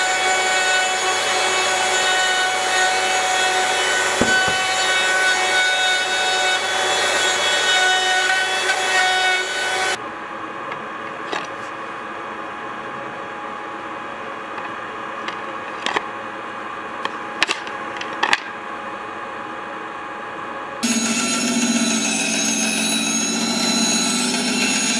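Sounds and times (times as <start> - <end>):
wood router cutting wood: 0.0 - 10.0, 20.8 - 24.9.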